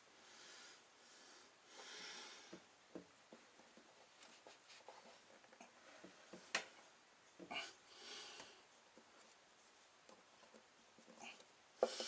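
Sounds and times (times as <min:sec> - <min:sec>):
rustling of hands: 0:03.3 - 0:07.6.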